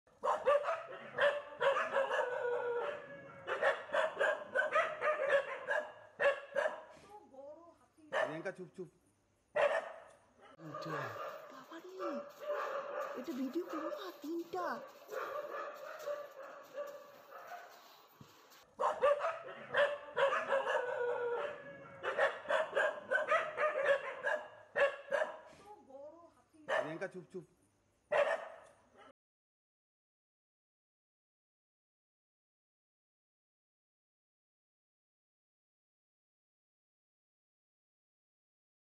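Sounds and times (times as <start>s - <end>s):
dog barking: 0.2s - 7.0s, 8.1s - 8.5s, 9.6s - 25.7s, 26.7s - 27.1s, 28.1s - 29.2s.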